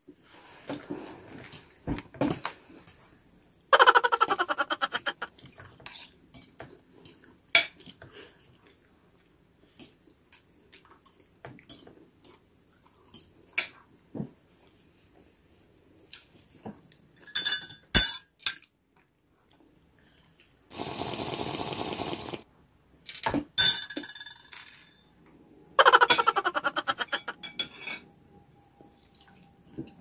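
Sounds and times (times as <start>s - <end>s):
cutlery clinking on plates: 17.2s - 18.7s, 23.6s - 25.0s, 27.3s - 28.1s.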